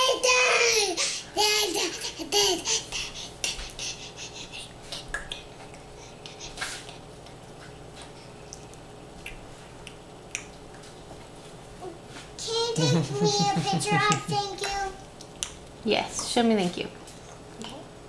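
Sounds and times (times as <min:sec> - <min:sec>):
faint steady hum: 0:00.0 - 0:18.0.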